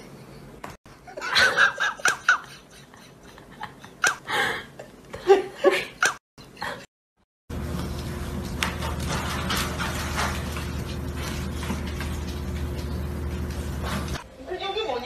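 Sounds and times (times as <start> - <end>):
person giggling and laughing: 1.0 - 6.9.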